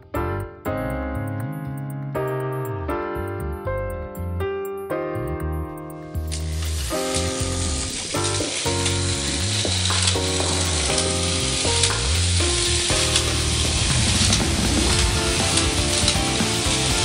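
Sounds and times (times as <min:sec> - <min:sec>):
background music: 0:00.0 - 0:17.0
toy trains rattling whir: 0:06.3 - 0:17.0.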